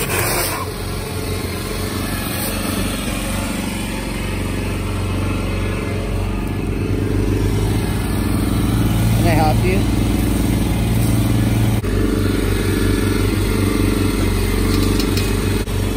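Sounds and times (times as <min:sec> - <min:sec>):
small gas engine running: 0:00.0 - 0:15.9.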